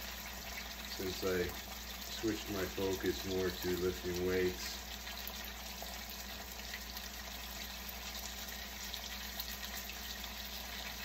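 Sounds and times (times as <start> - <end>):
steaks sizzling in a pan: 0.0 - 11.0.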